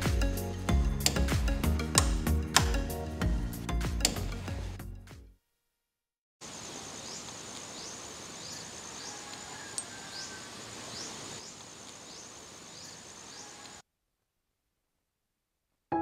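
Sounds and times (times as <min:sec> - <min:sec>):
insects trilling: 0:06.4 - 0:13.8
soft hiss: 0:06.4 - 0:13.8.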